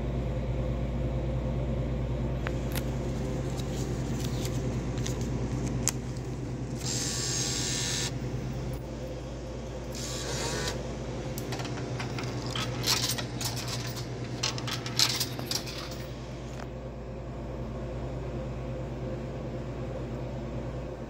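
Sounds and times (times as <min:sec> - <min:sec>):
steady low hum: 0:00.0 - 0:21.0
coins rattling through vending machine: 0:11.4 - 0:16.3.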